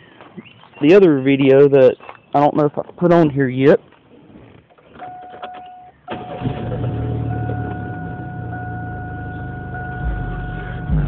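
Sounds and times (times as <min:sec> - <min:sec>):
car engine starting and idling: 0:05.1 - 0:11.0.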